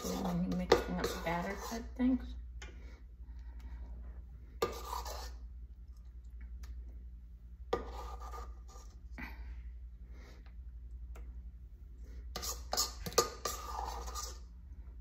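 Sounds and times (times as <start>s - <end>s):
spatula scraping metal bowl: 0.0s - 2.3s, 4.6s - 5.5s, 7.7s - 9.0s, 12.3s - 14.5s.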